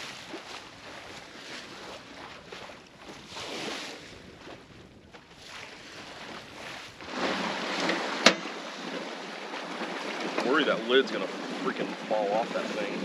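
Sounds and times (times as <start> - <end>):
wind on microphone: 0.0 - 9.1
sea noise: 0.0 - 13.0.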